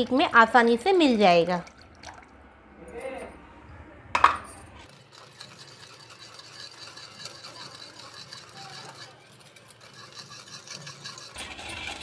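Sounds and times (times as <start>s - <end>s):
spoon scraping metal bowl: 4.8s - 12.0s.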